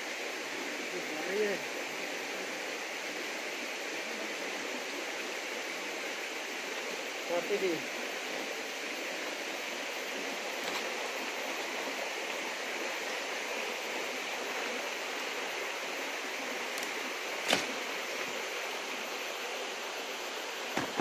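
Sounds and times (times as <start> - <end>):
forest stream running: 0.0 - 21.0
sharp click: 16.8 - 17.7.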